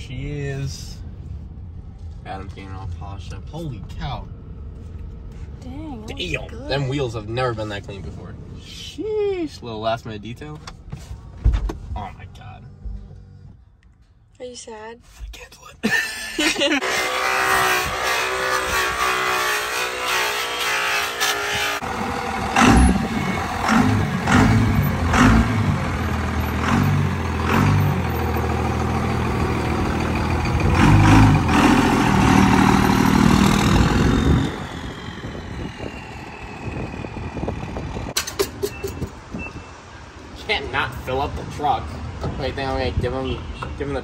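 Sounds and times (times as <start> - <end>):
diesel engine revving: 16.5 - 38.2.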